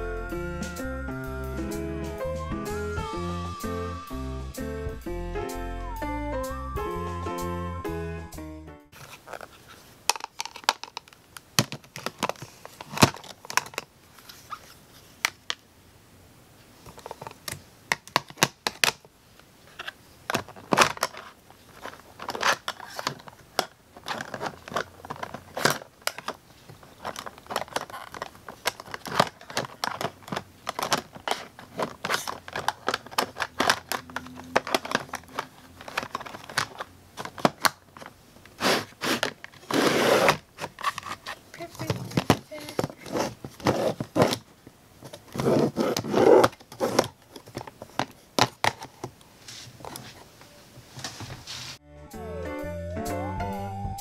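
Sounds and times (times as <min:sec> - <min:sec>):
plastic compacts clicking and knocking: 0:09.3 - 0:13.9, 0:16.9 - 0:19.1, 0:19.8 - 0:49.2.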